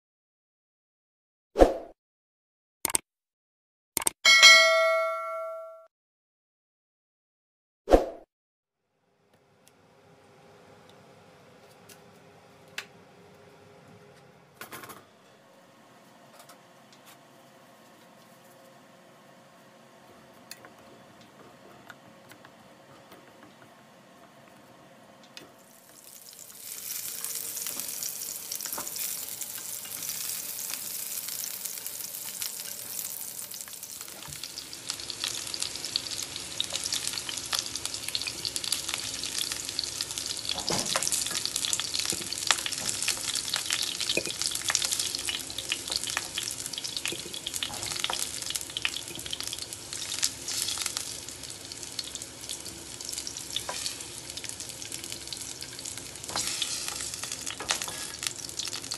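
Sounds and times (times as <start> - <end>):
potatoes sizzling in hot oil: 25.6 - 58.9.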